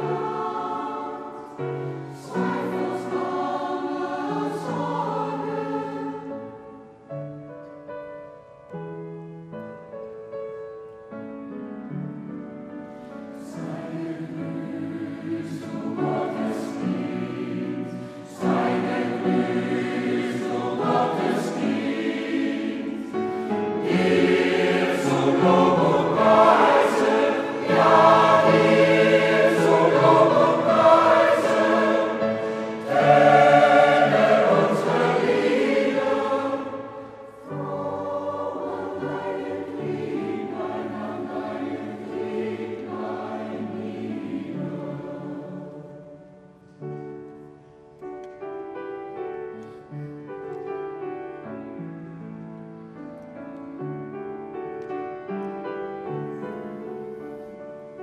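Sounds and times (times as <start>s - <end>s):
mixed choir singing: 0.0s - 7.0s, 13.3s - 46.4s.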